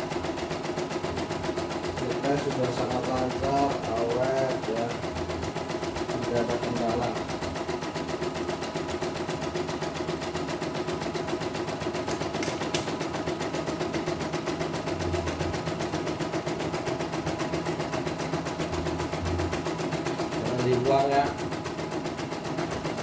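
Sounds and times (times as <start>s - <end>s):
embroidery machine stitching: 0.0s - 23.0s.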